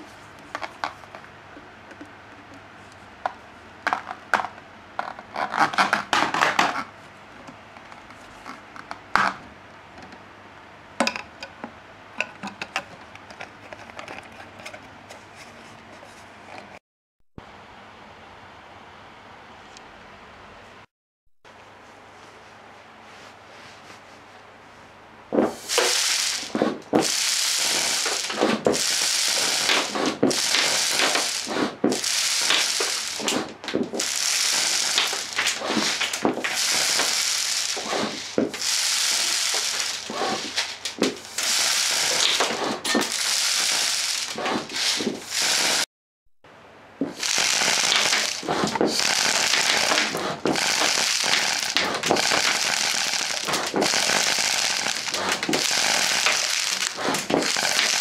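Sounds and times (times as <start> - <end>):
pellets striking target: 25.4 - 45.9, 47.0 - 58.0
rush of air from air gun: 25.5 - 45.9, 47.1 - 58.0.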